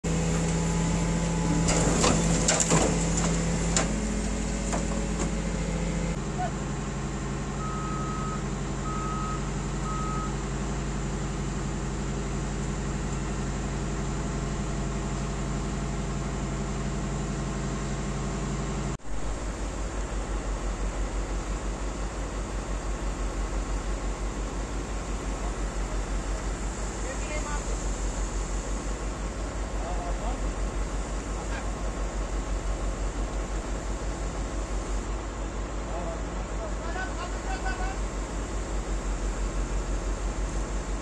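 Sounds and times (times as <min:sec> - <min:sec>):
diesel engine pulsing throb: 0:00.0 - 0:17.6, 0:18.8 - 0:35.1
heavy machine diesel engines: 0:00.0 - 0:41.0
reversing beeps: 0:07.6 - 0:10.4.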